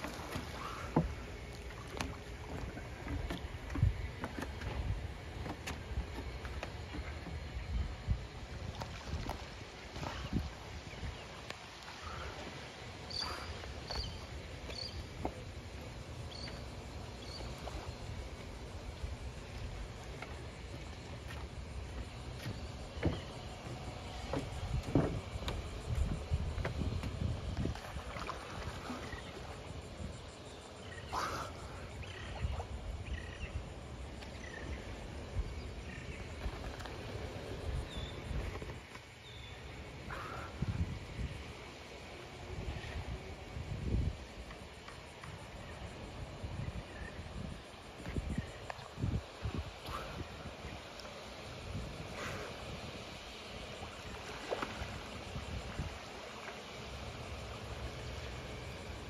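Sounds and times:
rippling water: 0:00.0 - 0:59.0
wind rumbling on microphone: 0:00.0 - 0:59.0
wind buffeting microphone: 0:19.0 - 0:30.3, 0:40.0 - 0:41.7, 0:42.4 - 0:44.5, 0:45.4 - 0:50.9.

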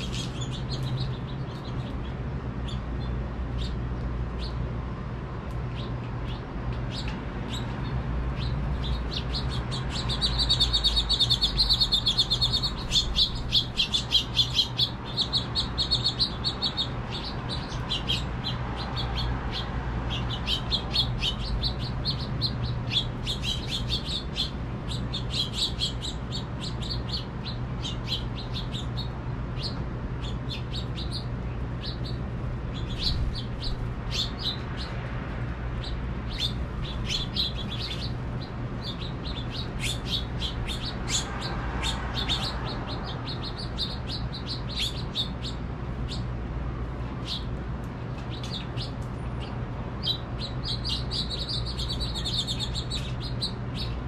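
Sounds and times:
finches chirping and twittering: 0:00.0 - 0:04.7, 0:05.5 - 0:54.0
steady low rumble: 0:00.0 - 0:54.0.

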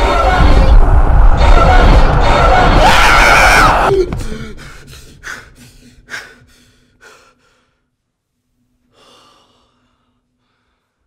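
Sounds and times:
man panting heavily: 0:04.1 - 0:07.9.

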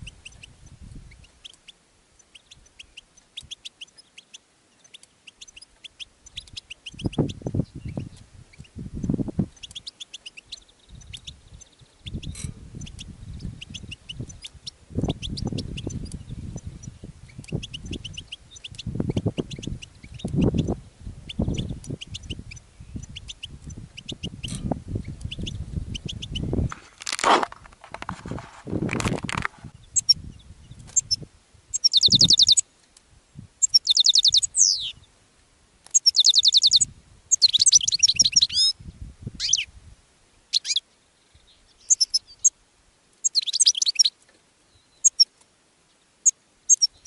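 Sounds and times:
wind buffeting microphone: 0:00.0 - 0:01.3, 0:06.3 - 0:09.9, 0:10.5 - 0:32.6, 0:36.6 - 0:40.0
finches twittering: 0:00.0 - 0:26.7, 0:29.4 - 0:32.6, 0:33.6 - 0:35.1, 0:35.9 - 0:38.8, 0:40.5 - 0:42.6, 0:43.2 - 0:44.1, 0:44.8 - 0:45.3, 0:46.2 - 0:47.0
loud rustle: 0:26.6 - 0:29.7.

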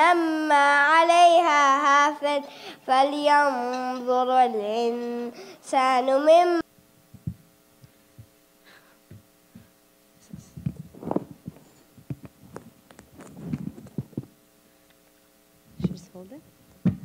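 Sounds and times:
faint electrical hum: 0:00.0 - 0:17.0
microphone handling thumps: 0:07.1 - 0:08.4, 0:09.1 - 0:14.4, 0:16.7 - 0:17.0.

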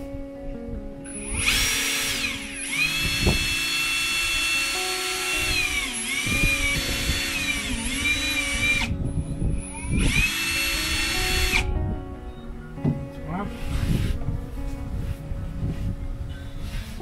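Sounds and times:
power drill boring through metal: 0:01.1 - 0:08.9, 0:09.6 - 0:11.7.

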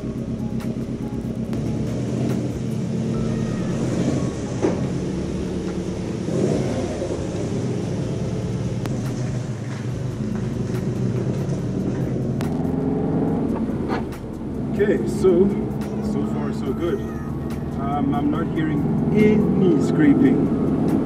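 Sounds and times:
car engine running at low revs: 0:00.0 - 0:21.0.

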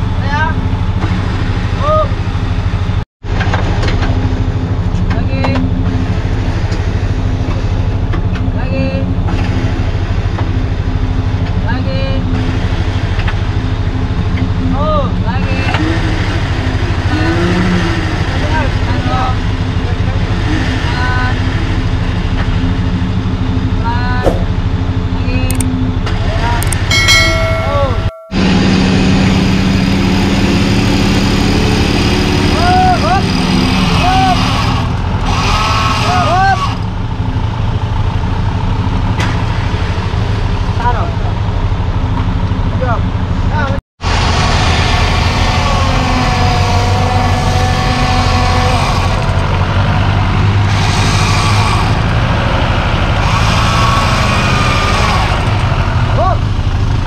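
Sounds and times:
off-road engine running: 0:00.0 - 0:57.0
people shouting: 0:32.6 - 0:33.3, 0:33.9 - 0:34.5, 0:45.5 - 0:49.2.

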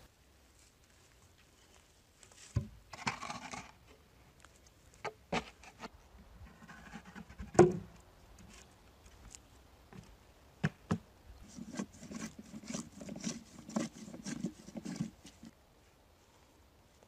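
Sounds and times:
short scraping rub: 0:11.4 - 0:15.5.

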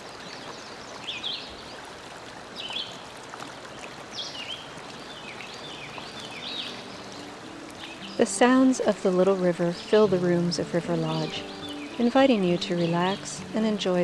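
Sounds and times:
songbird chirping: 0:00.0 - 0:01.9, 0:03.8 - 0:14.0
river rapids over rocks: 0:04.4 - 0:14.0.

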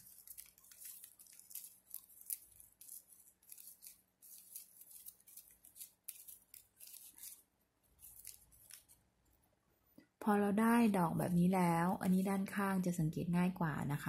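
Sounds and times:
ribbon rustling and crinkling: 0:00.0 - 0:09.2.

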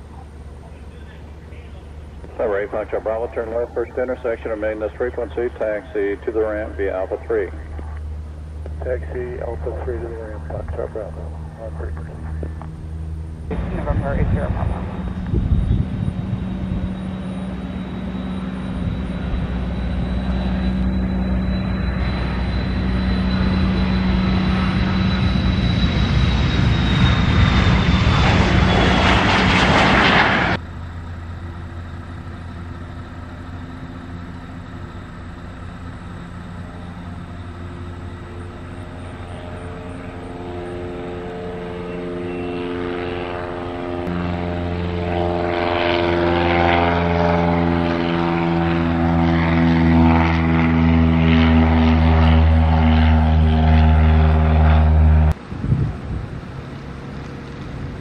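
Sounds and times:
jet engine whine: 0:00.0 - 0:58.0
propeller plane engine drone: 0:00.0 - 0:58.0
jet noise rush: 0:02.1 - 0:30.6.

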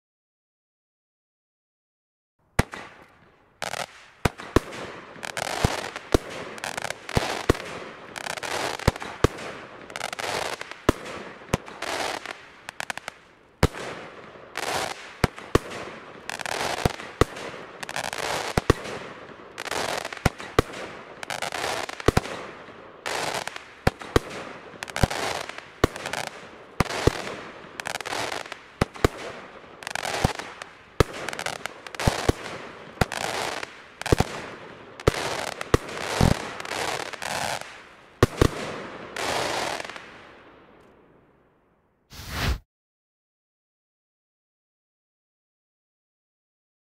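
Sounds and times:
firework stars crackling and popping: 0:02.6 - 0:41.0
firework crackling: 0:23.1 - 0:38.5, 0:42.1 - 0:42.6
firework bangs: 0:35.0 - 0:37.6.

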